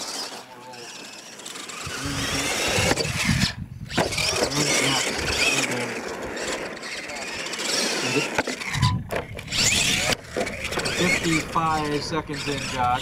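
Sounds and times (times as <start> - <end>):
toy truck motor whining: 0.0 - 13.0.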